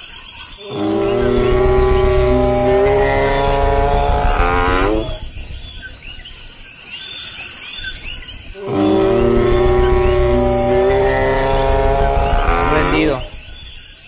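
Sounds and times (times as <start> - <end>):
forest ambience: 0.0 - 14.0
dinosaur bellow: 0.6 - 5.7, 8.6 - 13.7.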